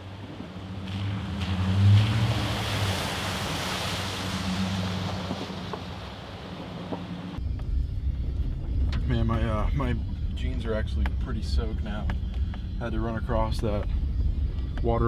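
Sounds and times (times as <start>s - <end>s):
water splashing around tyres: 0.0s - 7.4s
engine and road rumble in cab: 0.0s - 15.0s
truck engine hum: 0.0s - 15.0s.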